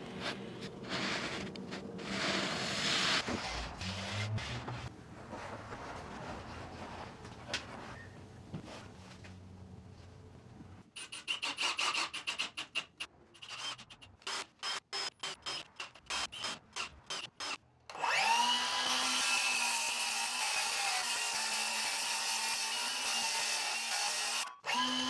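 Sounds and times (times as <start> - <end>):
power tool motor whine: 24.2 - 25.0.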